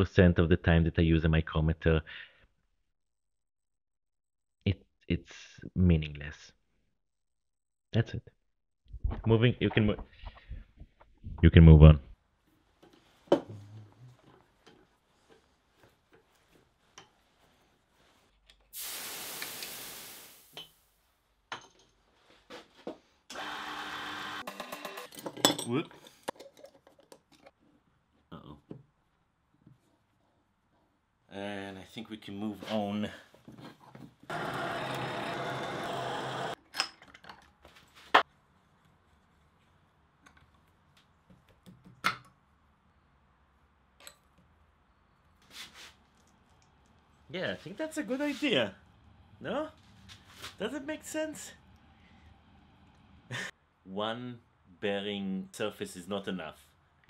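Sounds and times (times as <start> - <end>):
aerosol can spraying: 18.8 - 20.5.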